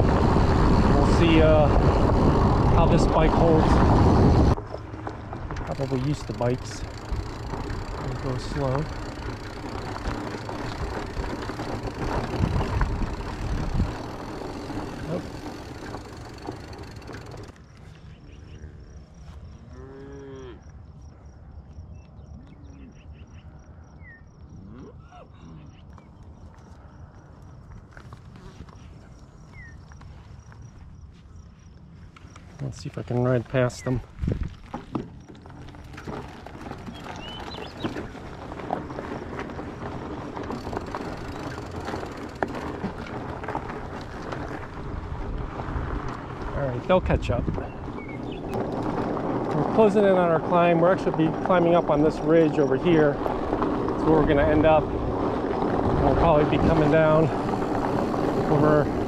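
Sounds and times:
bike clicks and rattles: 0.0s - 18.3s, 25.8s - 30.8s, 32.1s - 59.0s
tyres rolling over dirt and stones: 0.0s - 18.3s, 32.3s - 59.0s
low wind rumble: 0.0s - 59.0s
cattle mooing: 19.6s - 20.6s.

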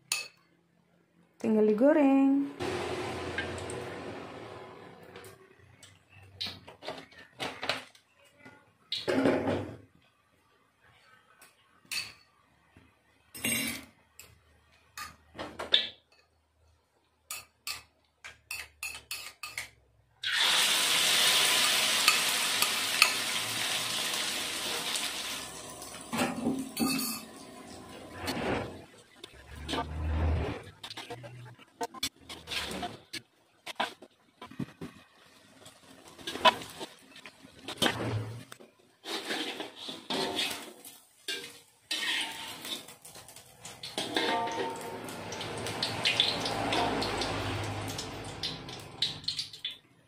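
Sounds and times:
noodles sizzling in hot oil: 2.6s - 4.8s, 20.2s - 28.2s, 35.0s - 49.8s
kitchenware clinking: 11.8s - 12.4s, 13.3s - 16.4s, 17.3s - 19.8s, 21.6s - 23.3s, 26.1s - 27.6s, 43.8s - 47.4s.

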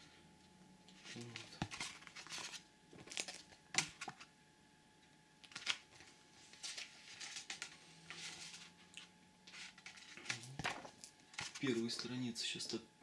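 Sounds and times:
book pages turning: 0.9s - 4.3s, 5.4s - 12.1s.

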